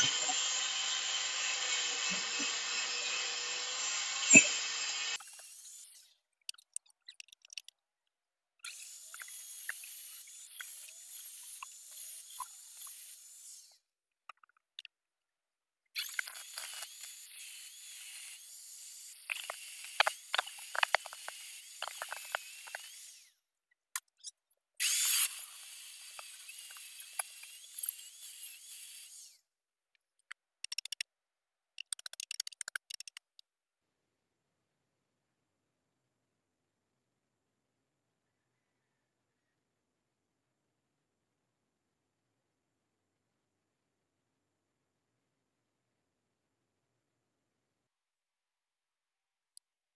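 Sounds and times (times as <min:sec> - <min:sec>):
angle grinder cutting steel: 0:00.0 - 0:06.2, 0:08.7 - 0:13.8, 0:16.0 - 0:23.4, 0:24.8 - 0:29.4.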